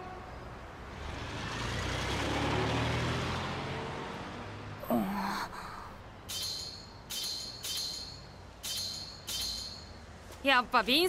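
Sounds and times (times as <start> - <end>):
vehicle driving past: 0.8 - 4.8.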